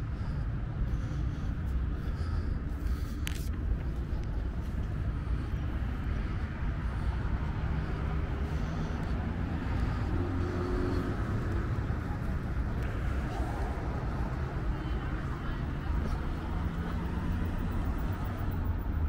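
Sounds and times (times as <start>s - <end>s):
road traffic rumble: 0.0s - 19.0s.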